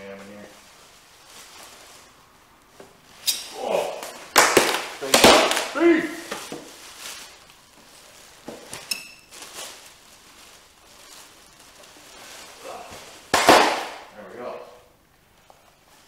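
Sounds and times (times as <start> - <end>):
cardboard and plastic rustling: 0.0 - 3.3, 4.0 - 14.1
loud sharp snap: 4.3 - 5.7, 13.3 - 14.1.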